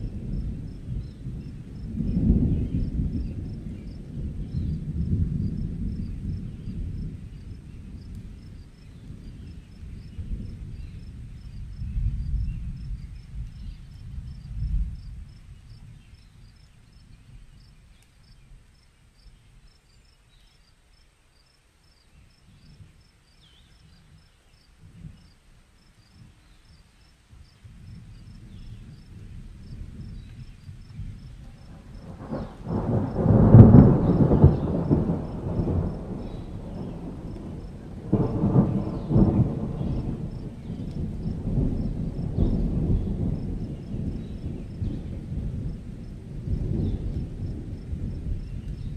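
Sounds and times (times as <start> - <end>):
thunder rolling: 0.0 - 15.4, 27.8 - 48.9.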